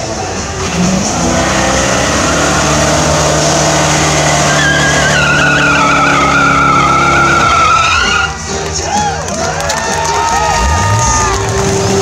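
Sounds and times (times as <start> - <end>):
car engine at high revs: 0.0 - 7.8
tires spinning and squealing: 0.0 - 8.5.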